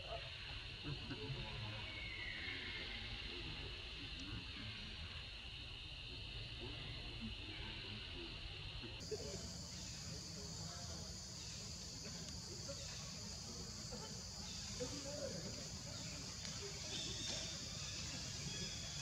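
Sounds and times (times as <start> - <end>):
insects chirping: 9.0 - 19.0.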